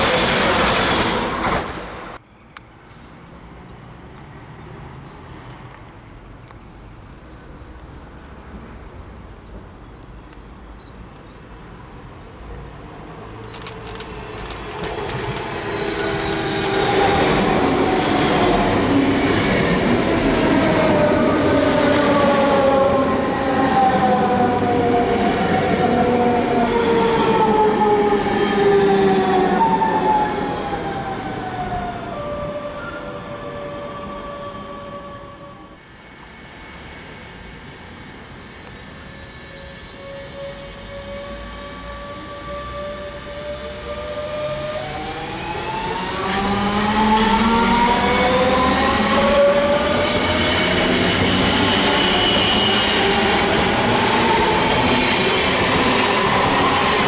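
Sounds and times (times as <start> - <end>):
train wheels rumbling on rail: 0.0 - 2.2, 13.3 - 31.8, 38.8 - 57.0
train motor whine: 13.4 - 19.3, 31.2 - 57.0.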